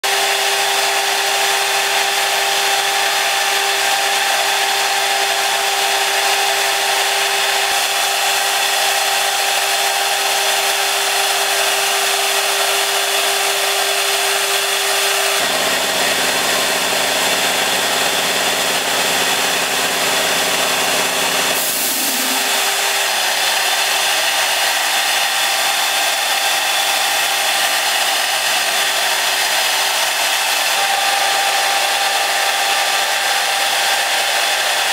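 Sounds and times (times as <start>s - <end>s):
router spindle whining: 0.0s - 34.9s
water hiss: 21.6s - 22.5s.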